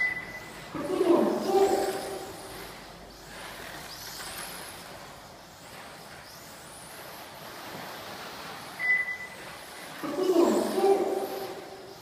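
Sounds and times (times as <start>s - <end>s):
rc car electric motor whining: 0.0s - 7.8s
steady hiss: 0.0s - 12.0s.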